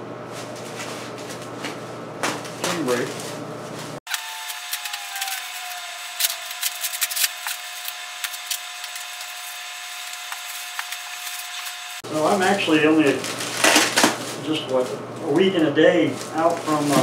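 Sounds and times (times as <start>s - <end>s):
bubble wrap crackling: 2.2s - 17.0s.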